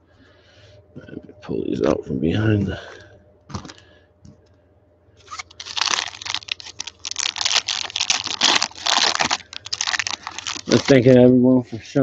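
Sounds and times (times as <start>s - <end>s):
foil wrapper crinkling and tearing: 5.2s - 11.2s.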